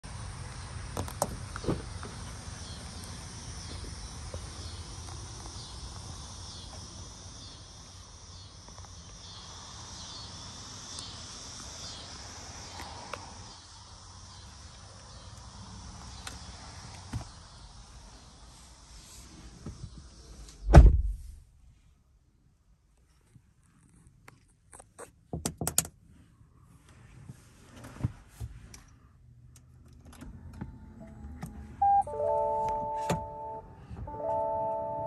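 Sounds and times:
insects chirping: 0.1s - 19.0s.

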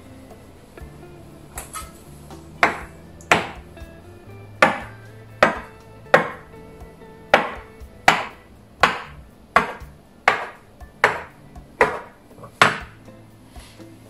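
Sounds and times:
bench scraper chopping dough on wood: 2.6s - 3.6s, 4.6s - 6.4s, 7.4s - 12.9s.

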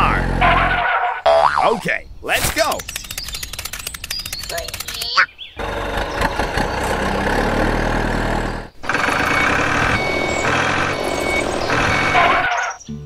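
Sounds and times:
vehicle engine running: 0.0s - 0.8s, 5.6s - 12.8s
high beeping tone: 9.1s - 12.8s.

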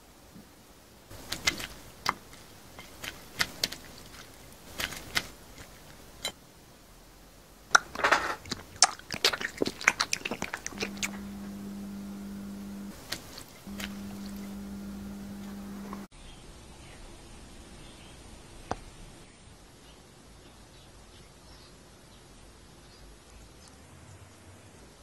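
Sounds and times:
crunching and chewing food: 1.1s - 6.3s, 7.7s - 16.1s
steady low tone: 10.7s - 13.0s, 13.7s - 16.1s.

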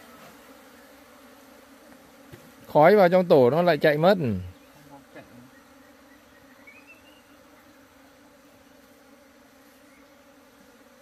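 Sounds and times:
bees buzzing: 0.0s - 11.0s.

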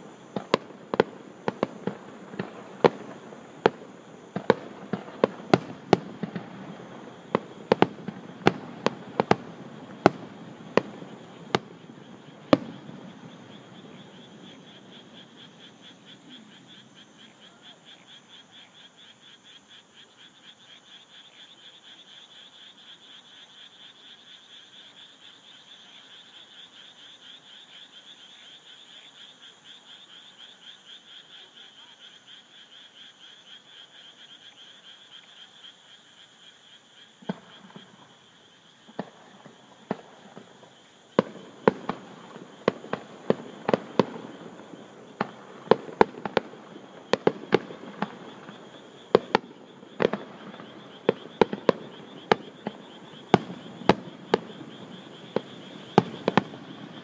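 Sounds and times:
fireworks bangs and crackles: 0.0s - 15.4s, 37.2s - 38.2s, 38.8s - 57.0s
frogs calling in chorus: 6.9s - 57.0s.

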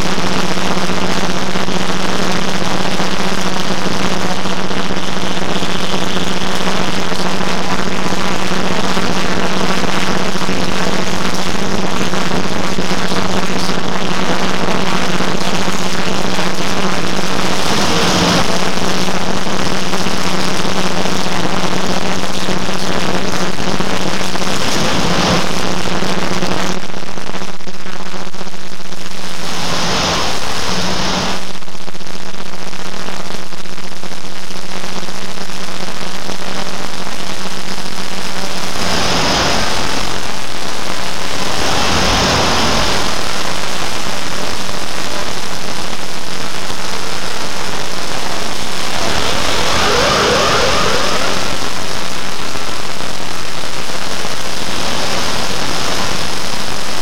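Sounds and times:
roaring wall of noise: 0.0s - 27.0s, 28.8s - 31.6s, 35.3s - 57.0s
steady low hum: 35.1s - 57.0s.

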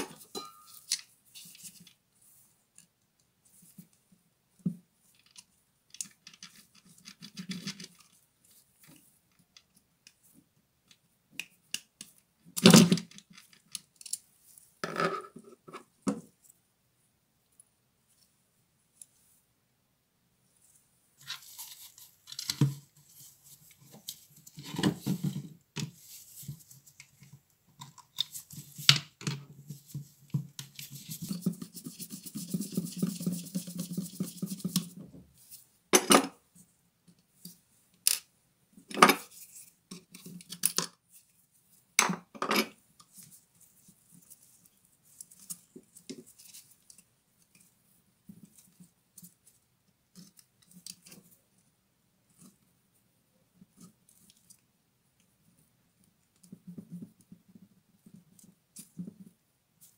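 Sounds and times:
scraping and rubbing: 29.5s - 35.7s.

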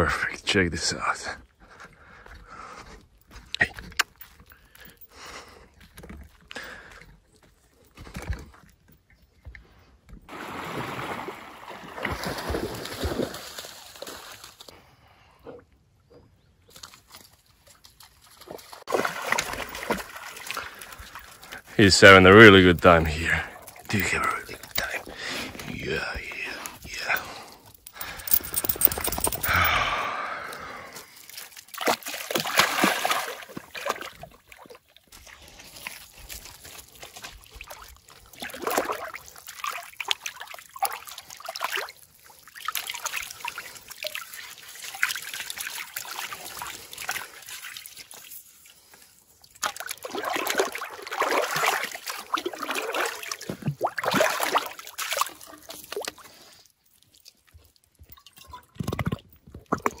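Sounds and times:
lake water splashing: 10.3s - 14.8s, 16.7s - 57.3s.

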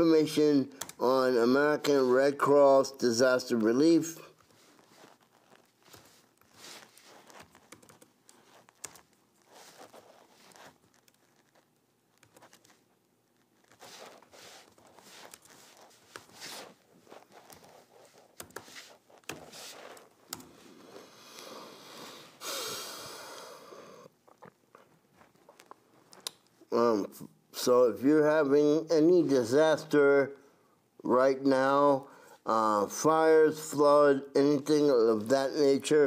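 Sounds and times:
laptop keyboard typing: 0.8s - 1.0s, 4.9s - 12.9s, 13.7s - 20.6s.

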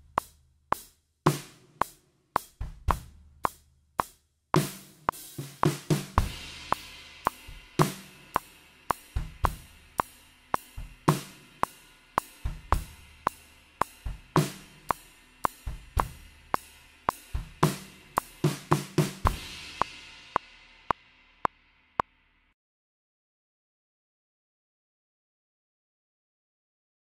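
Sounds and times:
snare drum: 0.0s - 21.0s
ride cymbal: 0.0s - 22.4s
kick drum: 2.4s - 3.6s, 12.5s - 13.0s, 14.1s - 14.6s, 15.7s - 16.3s, 17.4s - 17.8s, 18.4s - 19.6s.

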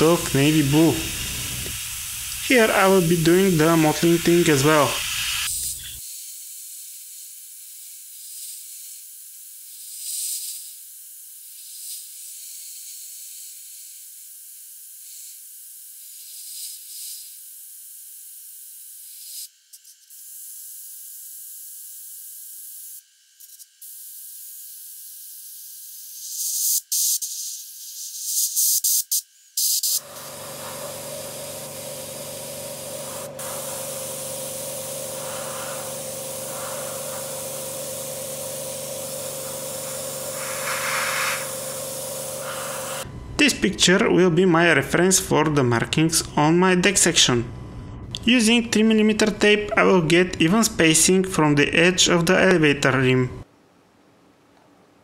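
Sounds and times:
airbrush spraying hiss: 0.0s - 6.0s, 28.3s - 43.1s.

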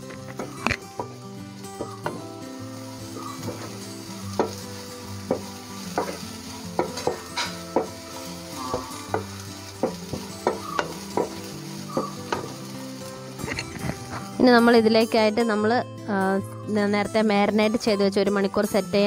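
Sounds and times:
onions sizzling in oil: 0.0s - 15.5s
spatula knocking on pan: 1.8s - 2.3s, 3.1s - 12.7s.

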